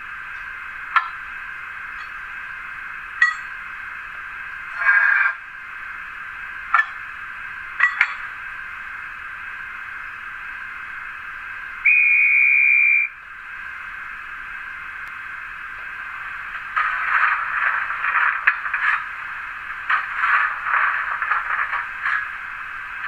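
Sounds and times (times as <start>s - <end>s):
steady background hiss: 0.0s - 23.0s
conductor's whistle: 11.8s - 13.2s.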